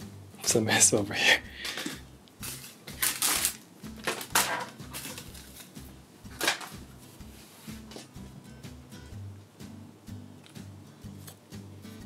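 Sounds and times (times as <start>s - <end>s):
plastic bags rustling: 1.8s - 6.8s.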